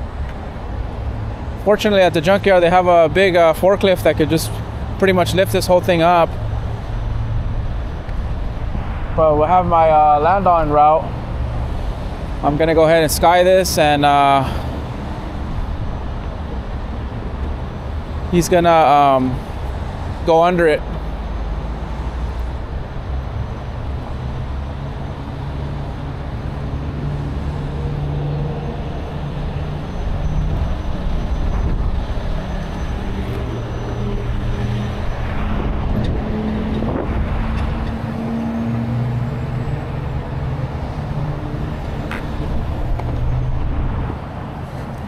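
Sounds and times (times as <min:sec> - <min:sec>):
freeway traffic: 0:00.0 - 0:45.0
truck engine humming: 0:13.6 - 0:45.0.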